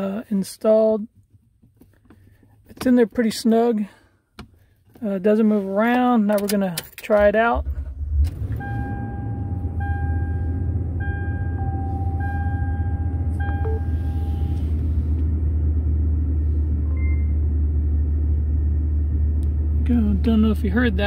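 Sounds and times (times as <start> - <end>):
short beep: 8.5 - 14.6, 16.9 - 17.4
truck engine idling: 8.5 - 21.0
electronic chime: 11.0 - 14.5.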